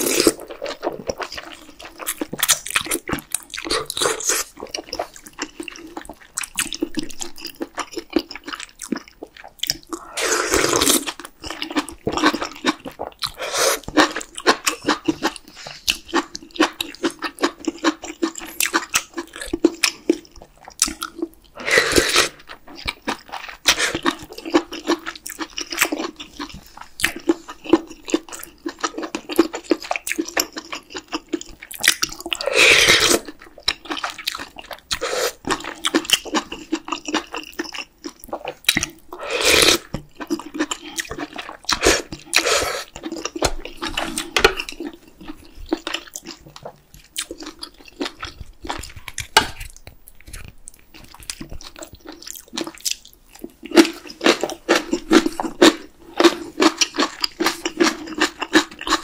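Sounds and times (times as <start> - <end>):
wet chewing and smacking: 0.0 - 21.6, 22.2 - 59.0
slurping noodles: 9.9 - 11.1, 13.3 - 14.1, 21.6 - 22.4, 32.4 - 33.3, 35.0 - 35.4, 39.2 - 39.9, 41.7 - 43.0.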